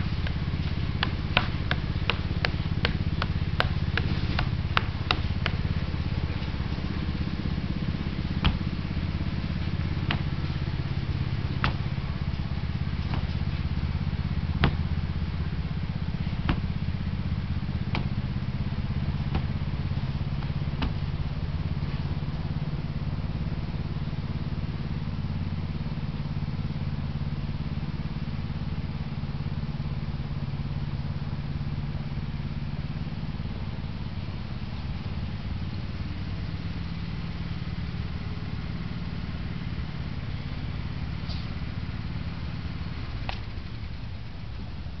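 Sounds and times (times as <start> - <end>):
sharp knocks: 0.0 - 13.8, 19.0 - 21.1
engine idling drone: 0.0 - 45.0.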